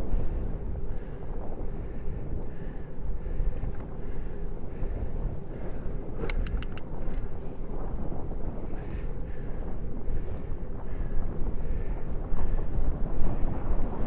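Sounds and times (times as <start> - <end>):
bicycle rolling: 0.0 - 14.0
wind rumbling on microphone: 0.0 - 14.0
sharp clicks: 6.2 - 7.2.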